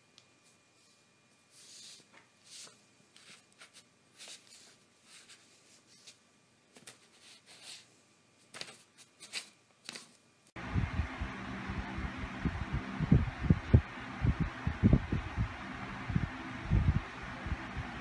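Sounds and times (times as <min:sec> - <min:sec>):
faint paw scratches on paper: 0:00.8 - 0:07.9
paper rustling and scraping: 0:01.5 - 0:10.2.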